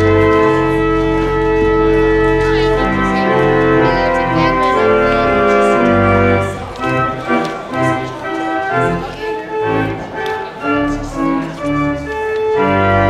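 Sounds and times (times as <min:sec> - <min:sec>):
church organ playing: 0:00.0 - 0:13.0.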